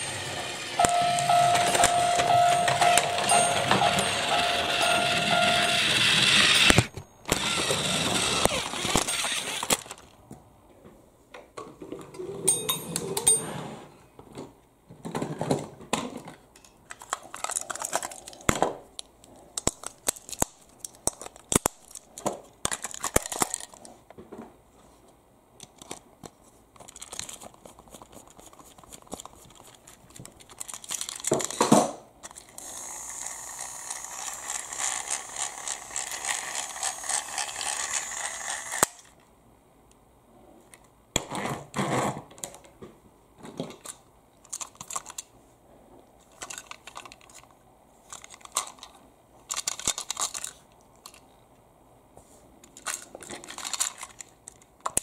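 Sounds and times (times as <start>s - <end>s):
small electric motor whirring: 0.0s - 10.0s, 32.5s - 39.1s
plastic toy clicks and rattles: 0.8s - 10.2s, 16.6s - 23.9s, 26.8s - 39.2s, 43.8s - 45.3s, 46.3s - 47.5s, 48.1s - 51.3s, 52.6s - 55.0s.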